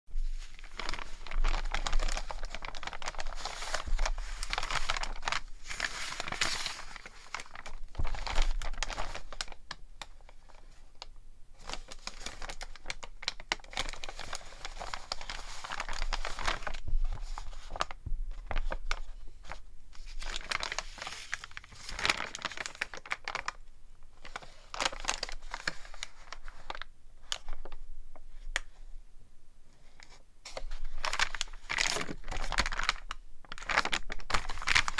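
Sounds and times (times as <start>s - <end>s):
stiff paper rustling and crinkling: 0.1s - 9.6s, 11.6s - 23.6s, 24.2s - 27.8s, 29.9s - 34.9s.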